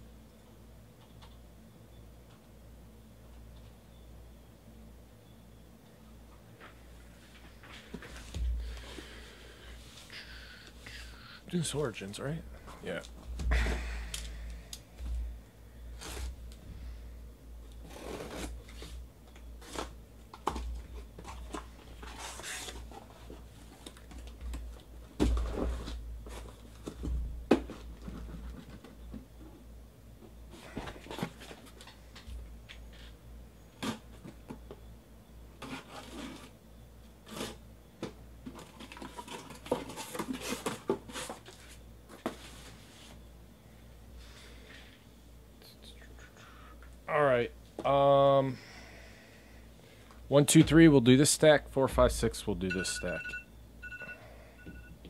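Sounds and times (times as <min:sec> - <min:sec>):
packing tape tearing: 0:17.7 - 0:20.7, 0:33.8 - 0:34.3
boxes sliding and set down: 0:38.6 - 0:43.2.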